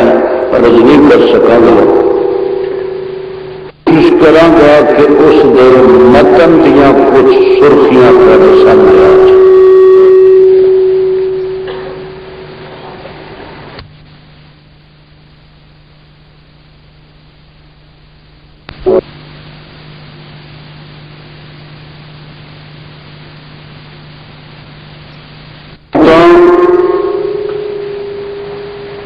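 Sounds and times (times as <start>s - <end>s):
loud sustained pitched tone: 0.0s - 13.7s, 18.8s - 19.4s, 25.9s - 29.0s
electrical hum: 0.0s - 29.0s.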